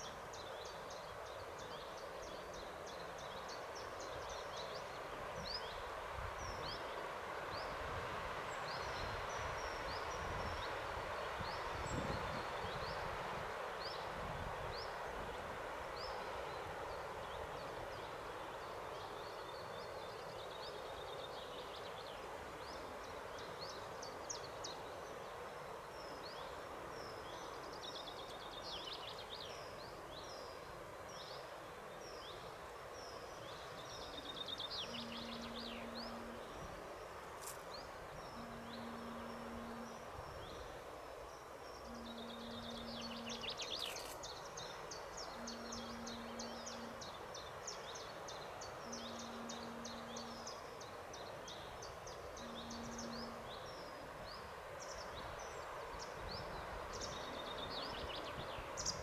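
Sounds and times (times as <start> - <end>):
songbirds chirping and trilling: 0.0 - 59.0
low drawn-out tone: 34.7 - 37.2, 38.0 - 40.8, 41.8 - 43.8, 45.1 - 54.6.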